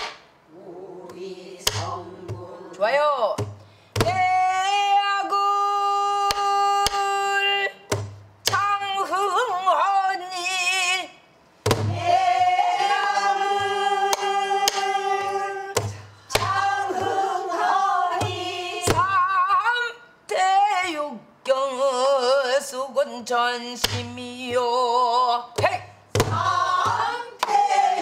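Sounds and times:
woman singing with wavering notes: 0:04.0 - 0:07.9.

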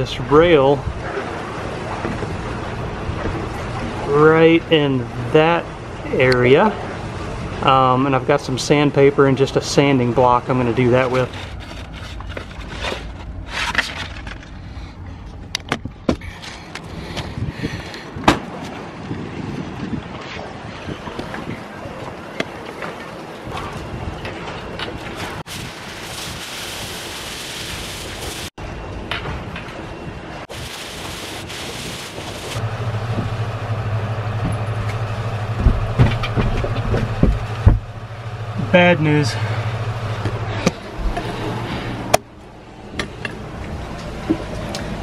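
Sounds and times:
low machine hum: 0:28.2 - 0:45.0
sandpaper sheets rustling: 0:30.5 - 0:32.6
heavy footsteps on steps: 0:35.6 - 0:37.9
sharp clicks and knocks: 0:35.6 - 0:37.9.

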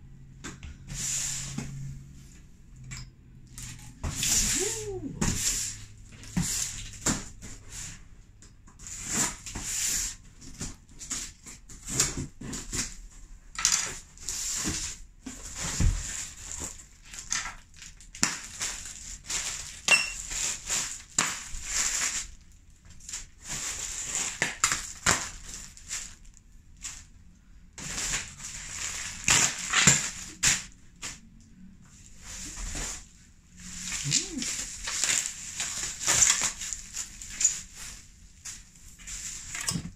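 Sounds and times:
crinkling of plastic packing: 0:13.9 - 0:27.1, 0:27.8 - 0:31.2, 0:32.2 - 0:39.9.

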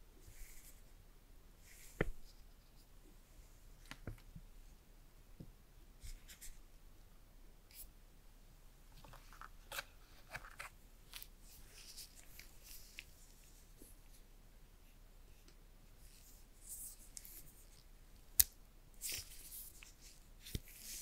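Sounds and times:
rustles and clicks of packaging: 0:08.9 - 0:13.2.

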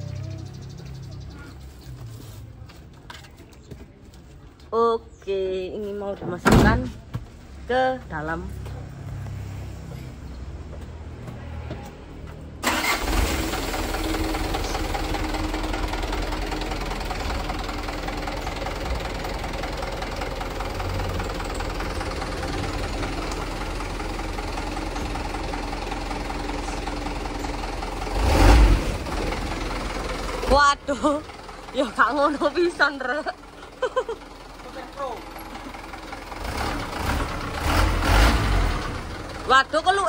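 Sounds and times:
diesel truck engine running: 0:12.6 - 0:40.0.

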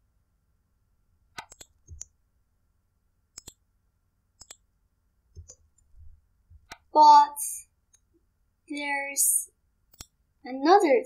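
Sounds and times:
computer mouse clicks: 0:01.3 - 0:02.2, 0:03.3 - 0:03.6, 0:04.4 - 0:04.7, 0:05.3 - 0:05.9, 0:06.6 - 0:06.9, 0:09.9 - 0:10.2.

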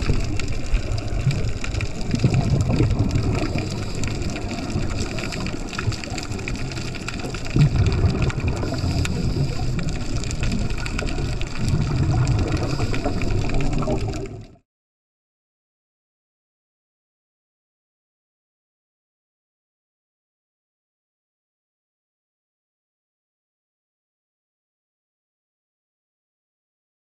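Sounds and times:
low rumble of water: 0:00.0 - 0:14.6
underwater bubbles gurgling: 0:00.0 - 0:14.6.

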